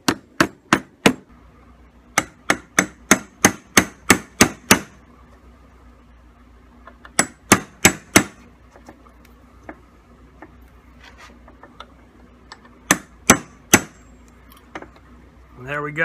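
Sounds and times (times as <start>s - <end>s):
hammer striking a metal punch: 0.0s - 1.2s, 2.1s - 5.0s, 7.1s - 8.4s, 12.9s - 14.0s.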